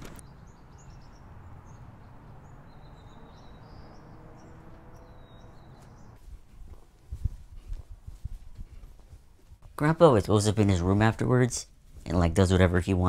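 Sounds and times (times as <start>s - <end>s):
faint bird chirps: 0.2s - 6.2s.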